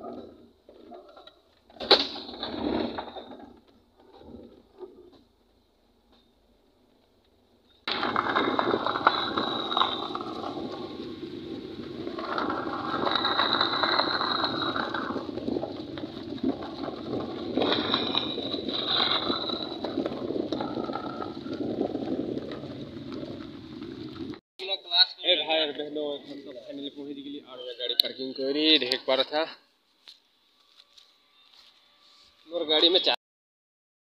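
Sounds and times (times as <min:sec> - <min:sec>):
tyres crunching on gravel: 0:07.9 - 0:24.4.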